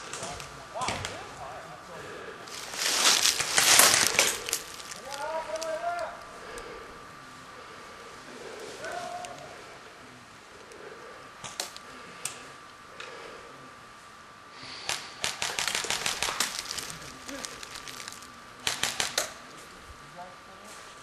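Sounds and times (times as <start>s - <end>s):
airsoft guns firing: 2.8s - 5.0s, 14.8s - 19.4s.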